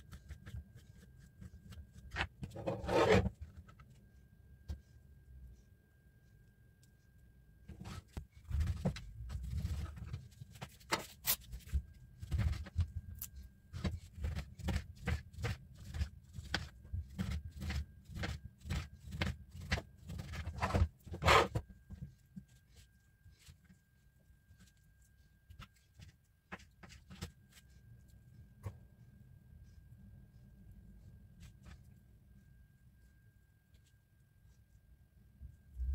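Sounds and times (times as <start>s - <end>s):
knife cutting on plastic board: 2.1s - 3.3s, 13.8s - 21.6s.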